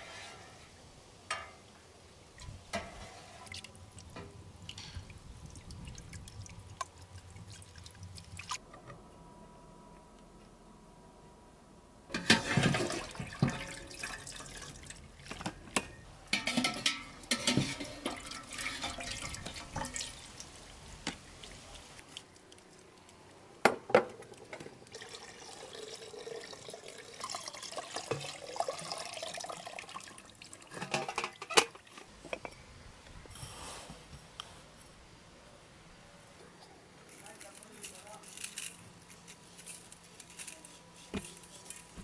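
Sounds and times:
liquid splashing and dripping: 0:03.5 - 0:08.6.

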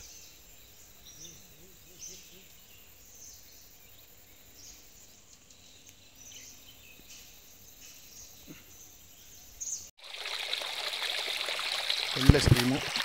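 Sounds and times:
faint birds chirping: 0:00.0 - 0:09.9
stream trickling over stones: 0:10.0 - 0:13.0.

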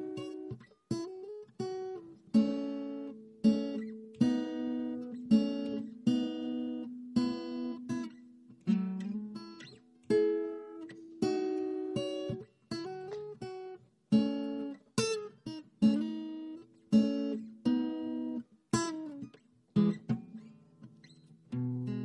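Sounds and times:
acoustic guitar chords: 0:00.0 - 0:22.0.

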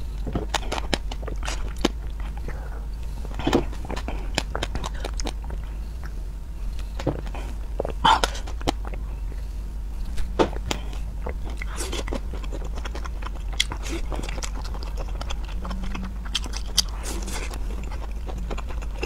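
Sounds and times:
steady low hum: 0:00.0 - 0:19.0
mouth clicks and smacks: 0:03.3 - 0:06.2, 0:10.4 - 0:19.0.

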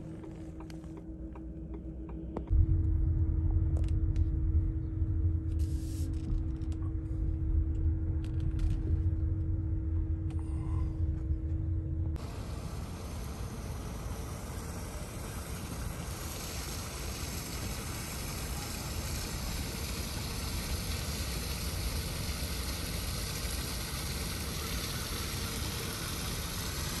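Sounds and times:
low rumble: 0:00.0 - 0:20.6
water splashing down rock fountain: 0:12.2 - 0:27.0.

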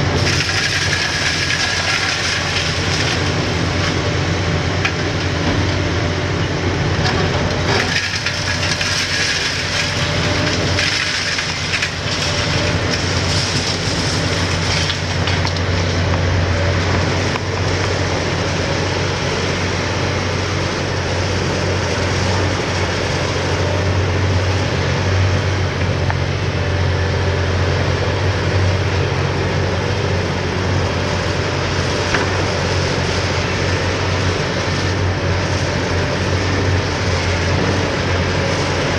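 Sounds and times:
excavator diesel engine working: 0:00.0 - 0:38.9
concrete crunching: 0:00.1 - 0:06.0, 0:07.0 - 0:18.0.

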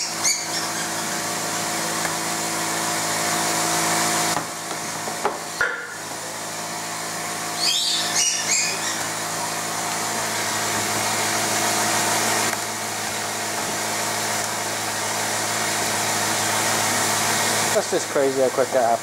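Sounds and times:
workshop machine whirring: 0:00.0 - 0:19.0
short squeaks: 0:07.6 - 0:09.1.

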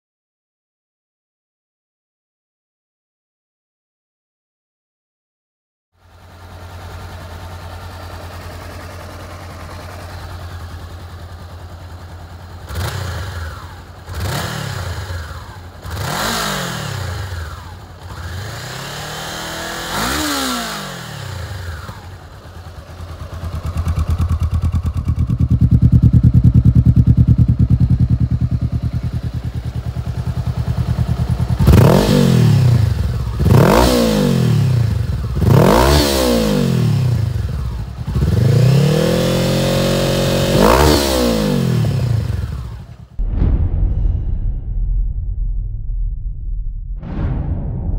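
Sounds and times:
motorcycle engine idling loudly: 0:06.0 - 0:43.2
motorcycle engine revving: 0:06.0 - 0:43.2.

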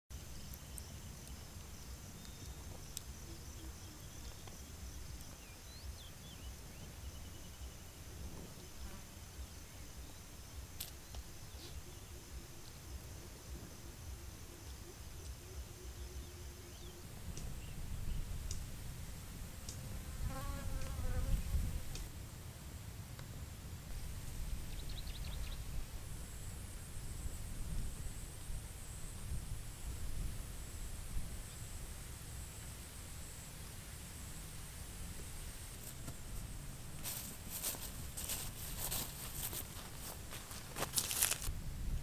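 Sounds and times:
faint high ticks: 0:17.3 - 0:17.6, 0:18.4 - 0:18.7, 0:19.6 - 0:19.8, 0:20.8 - 0:21.0
flying insect buzzing: 0:19.7 - 0:22.1.

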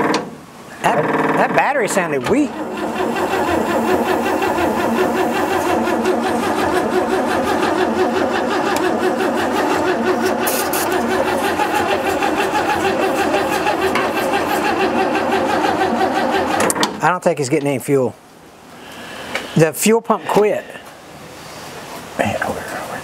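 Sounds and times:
starter cranking engine: 0:00.8 - 0:16.9.

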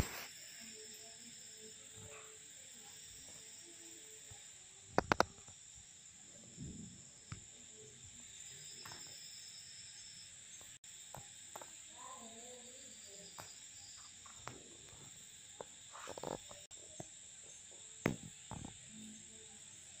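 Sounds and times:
crickets chirring: 0:00.0 - 0:20.0.

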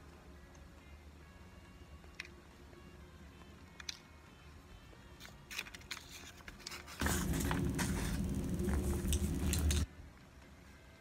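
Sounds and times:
foil wrapper crinkling: 0:05.5 - 0:09.9
dense rustling handling noise: 0:06.0 - 0:09.9.

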